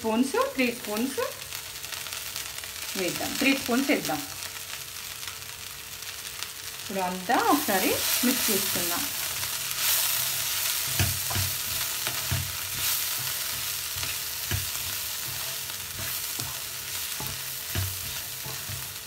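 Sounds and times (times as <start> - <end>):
frying sizzle: 0.0 - 19.0
spatula scraping a pan: 9.2 - 19.0.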